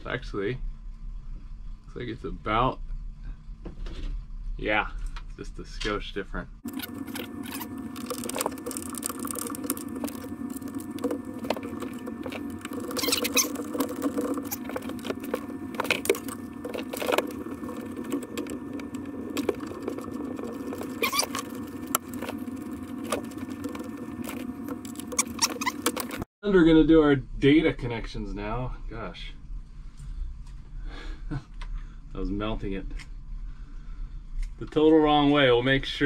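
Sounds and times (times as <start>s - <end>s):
steady hum: 0.0s - 36.0s
scraping and rustling: 6.7s - 26.3s.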